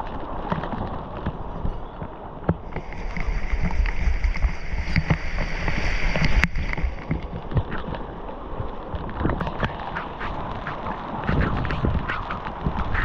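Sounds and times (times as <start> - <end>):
waterfall rushing and splashing: 2.7 - 7.8, 9.3 - 13.0.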